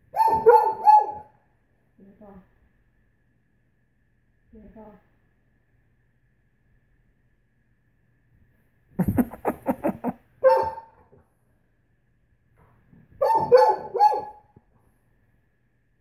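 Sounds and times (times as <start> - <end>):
dog barking: 0.1 - 1.4, 10.4 - 11.0, 13.2 - 14.5.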